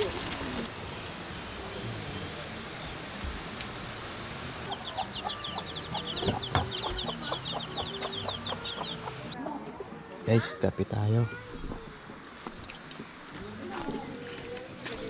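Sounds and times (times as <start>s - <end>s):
rapid high chirping: 4.2s - 9.4s
hen clucking: 4.5s - 9.4s.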